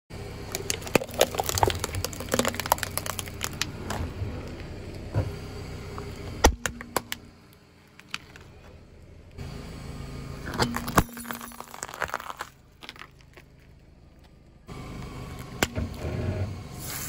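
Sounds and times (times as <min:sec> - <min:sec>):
steady low hum: 0:00.1 - 0:17.0
paper cup crushed by tyre: 0:00.5 - 0:04.0, 0:10.5 - 0:13.8
plastic container cracking: 0:00.5 - 0:04.0, 0:10.6 - 0:13.7.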